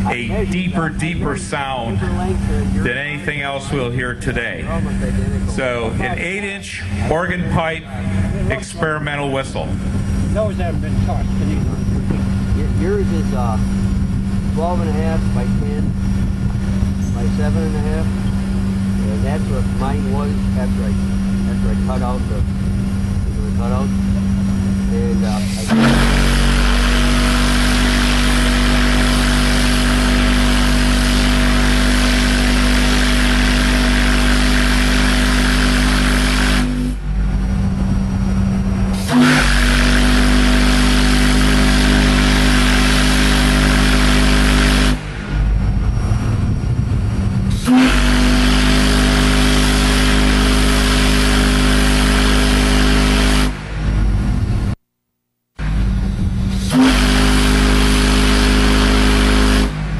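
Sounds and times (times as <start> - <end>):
deep steam whistle blasts: 25.2 - 37.1, 38.9 - 45.5, 47.5 - 53.7, 56.2 - 59.9.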